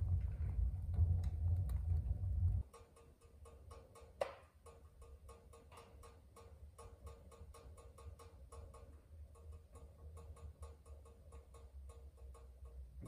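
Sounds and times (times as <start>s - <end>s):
loud low rumble: 0.0s - 2.6s
wood fire crackling: 0.0s - 7.4s.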